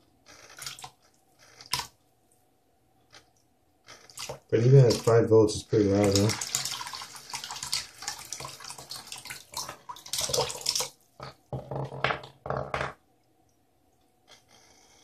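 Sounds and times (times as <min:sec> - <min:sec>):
water jet splashing: 0:04.1 - 0:10.9
water pump humming: 0:04.1 - 0:11.3.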